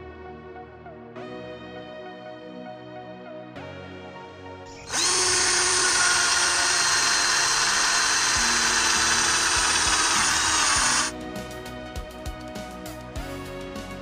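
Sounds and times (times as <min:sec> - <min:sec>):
electric drill whining through wood: 0:04.7 - 0:11.2.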